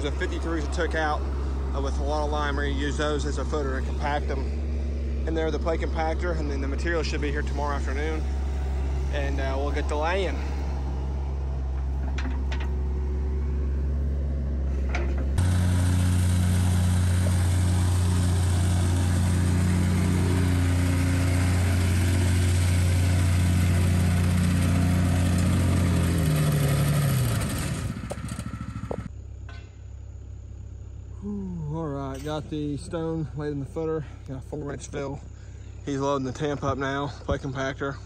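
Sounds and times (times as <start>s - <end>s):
excavator engine running: 0.0s - 29.3s.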